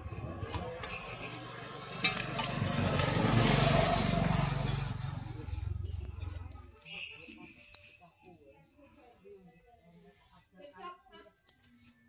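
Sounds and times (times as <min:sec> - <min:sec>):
vehicle engine passing by: 0:00.0 - 0:06.8.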